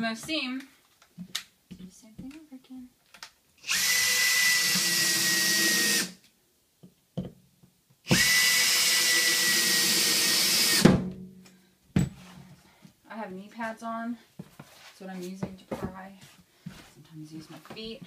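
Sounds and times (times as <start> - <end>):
cordless drill driving a screw: 3.6 - 6.2, 8.1 - 10.8.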